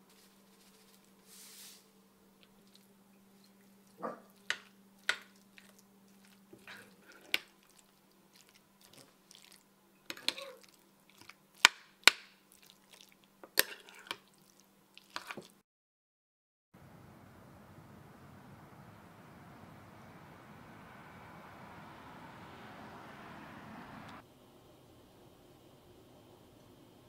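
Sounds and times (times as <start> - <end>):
faint steady hum: 0.0 - 11.6, 16.8 - 27.0
utensil squishing wet dip: 2.4 - 15.6.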